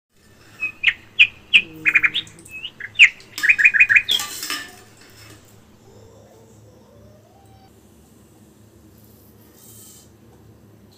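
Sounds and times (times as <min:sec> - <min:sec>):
small bird chirping: 0:00.2 - 0:06.1.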